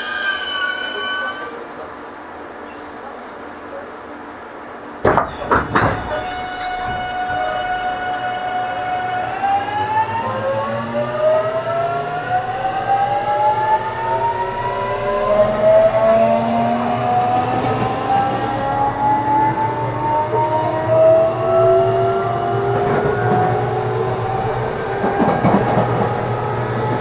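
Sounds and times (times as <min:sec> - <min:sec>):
electric train motor whine: 0:06.2 - 0:27.0.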